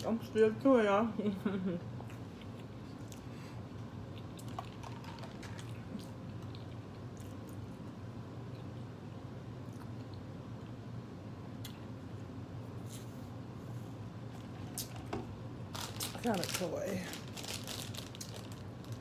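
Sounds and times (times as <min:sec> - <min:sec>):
steady low hum: 0:00.0 - 0:19.0
person chewing food: 0:02.0 - 0:08.9.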